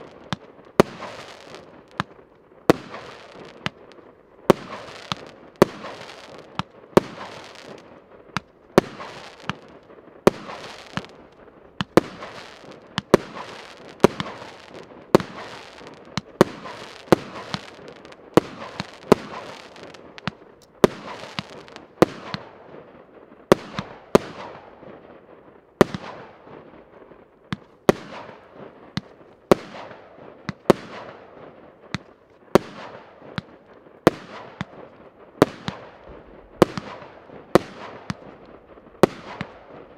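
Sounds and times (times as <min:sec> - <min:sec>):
fireworks bangs with hiss: 0:00.0 - 0:39.9.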